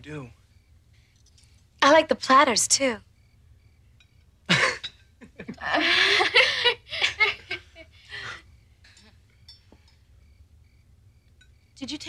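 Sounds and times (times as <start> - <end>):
people laughing: 4.5 - 8.4.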